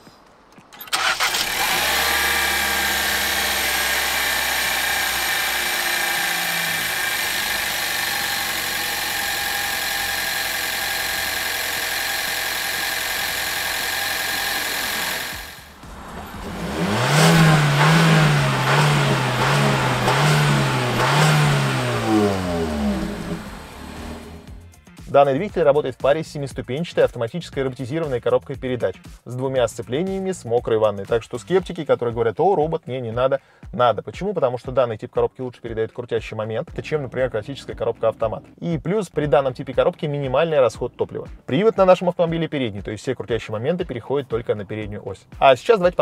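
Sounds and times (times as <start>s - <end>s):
car engine idling: 0.7s - 24.7s.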